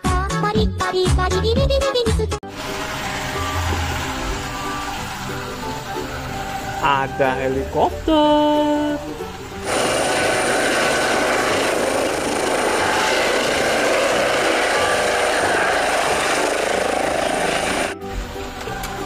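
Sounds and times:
helicopter rotor and turbine: 9.6 - 18.0.

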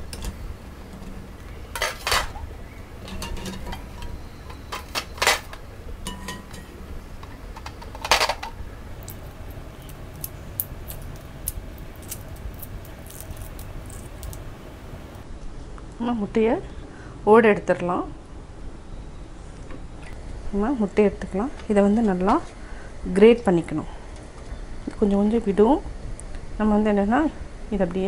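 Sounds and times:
wire skimmer clinking on steel pan: 1.8 - 6.8
eggshells cracking clicks: 9.0 - 15.2.

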